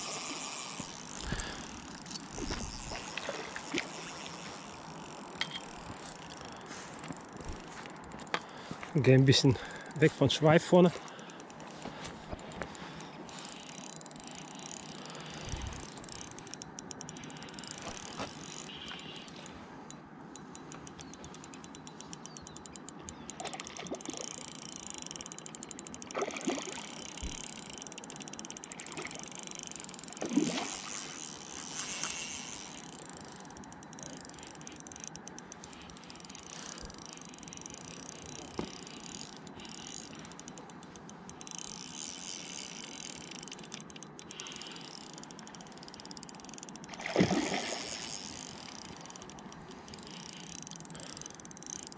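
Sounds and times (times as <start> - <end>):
spinning reel gears ticking: 0.0 - 8.4, 9.2 - 51.9.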